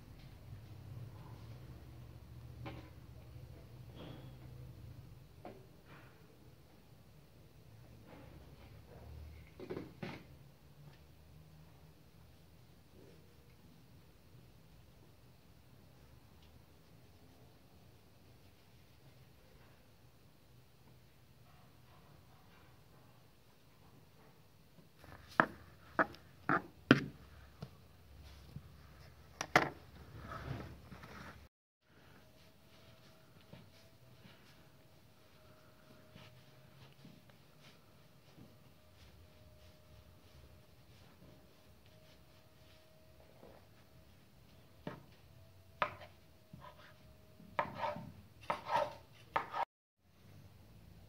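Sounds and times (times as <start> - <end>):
knife scraping board: 47.6 - 49.6.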